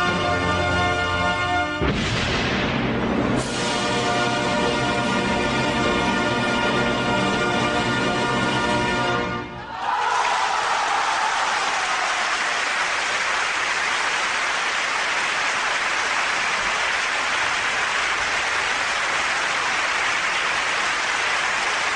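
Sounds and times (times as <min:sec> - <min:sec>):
audience applauding: 0:09.7 - 0:21.9.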